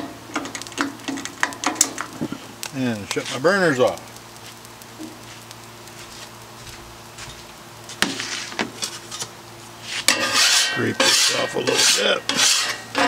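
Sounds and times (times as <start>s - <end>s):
griddle sizzling and crackling: 0.0s - 13.0s.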